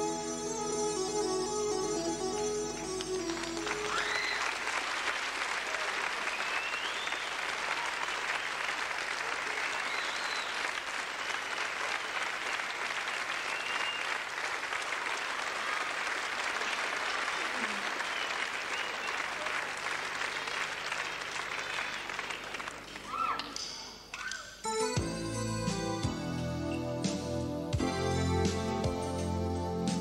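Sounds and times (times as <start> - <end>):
keyboard-led song: 0.0 - 4.0, 24.6 - 30.0
audience applauding: 2.7 - 24.4
shrill whistles: 3.8 - 4.6, 6.2 - 7.4, 9.6 - 10.7, 12.4 - 14.2, 18.0 - 19.3, 24.1 - 24.6.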